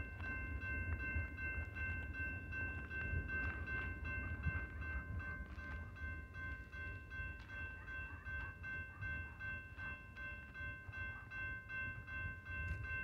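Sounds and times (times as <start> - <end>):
railroad crossing bell ringing: 0.0 - 13.0.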